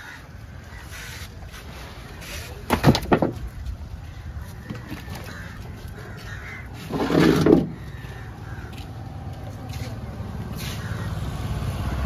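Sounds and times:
crow cawing: 0.0 - 1.3, 4.0 - 7.0, 7.6 - 9.0, 10.6 - 11.2.

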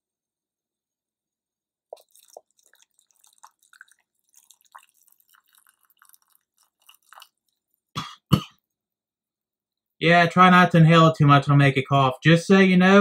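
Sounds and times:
liquid dripping and splashing: 1.9 - 7.9.

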